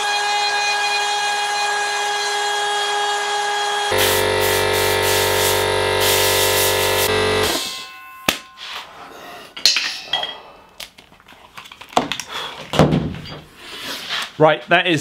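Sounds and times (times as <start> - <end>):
multi-tone hum: 3.9 - 8.0.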